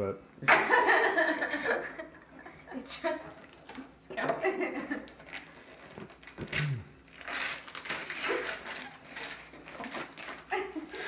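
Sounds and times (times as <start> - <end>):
wrapping paper rustling and tearing: 5.1 - 11.0.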